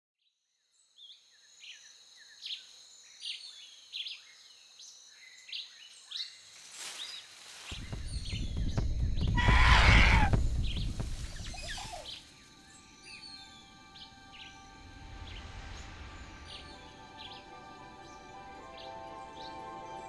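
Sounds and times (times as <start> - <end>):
birds chirping: 5.2 - 20.0
deep rushing rumble: 7.8 - 11.9.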